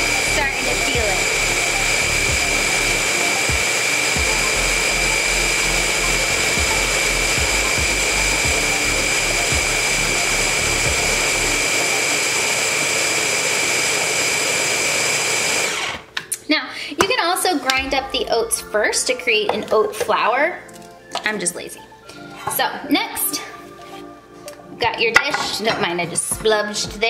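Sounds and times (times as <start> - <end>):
food chopper motor whining: 0.0 - 16.2.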